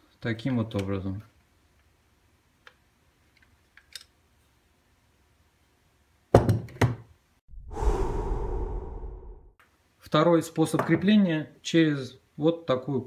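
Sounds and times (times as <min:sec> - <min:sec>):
whoosh transition effect: 0:07.5 - 0:09.6.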